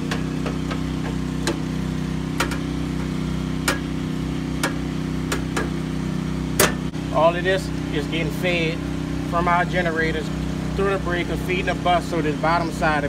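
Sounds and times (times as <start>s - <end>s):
steady engine hum: 0.0s - 13.0s
metal panel cover clicks: 2.4s - 2.7s, 3.6s - 3.9s, 4.6s - 5.8s, 6.6s - 6.8s.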